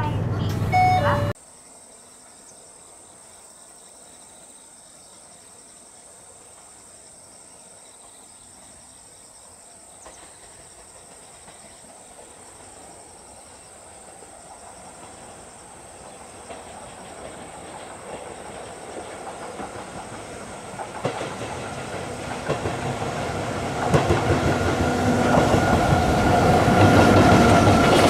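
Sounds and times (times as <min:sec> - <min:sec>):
freight train rumble: 0:00.0 - 0:01.4, 0:10.0 - 0:28.0
insects buzzing and trilling: 0:01.4 - 0:20.7.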